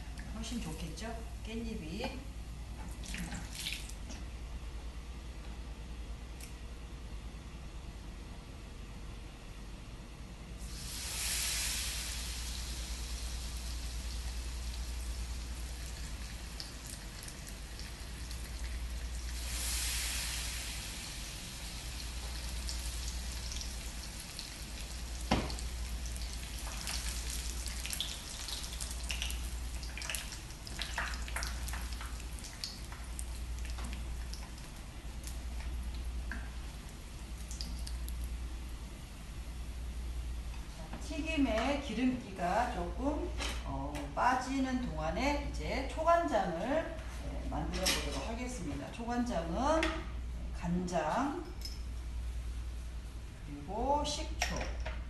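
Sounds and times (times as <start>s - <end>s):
oil sizzling while deep-frying: 10.6s - 39.2s
oil crackling and popping: 22.2s - 36.6s, 37.3s - 38.4s.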